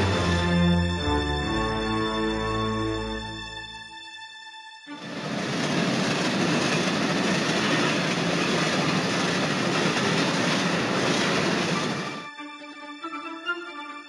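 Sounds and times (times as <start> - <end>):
train wheels on rail: 4.9 - 12.3.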